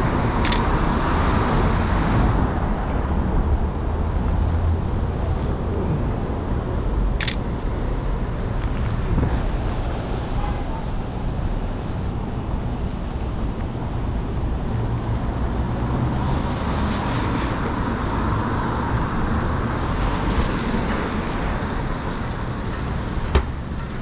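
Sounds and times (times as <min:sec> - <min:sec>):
city street traffic: 0:00.0 - 0:24.0
wind rumbling on microphone: 0:07.9 - 0:18.0.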